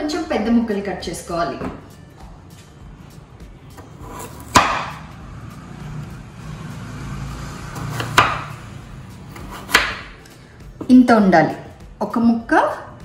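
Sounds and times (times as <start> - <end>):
knife blade striking cutting board: 3.8 - 5.0, 7.8 - 8.5, 9.3 - 10.2.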